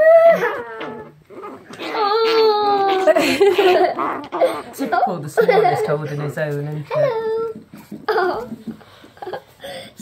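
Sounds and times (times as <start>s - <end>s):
puppy whining yelp: 0.0s - 3.2s, 3.8s - 4.8s.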